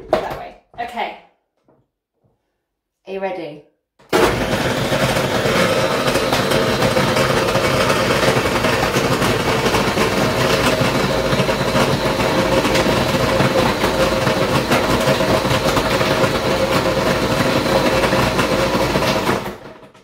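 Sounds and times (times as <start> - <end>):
blender motor whining: 4.0 - 20.0.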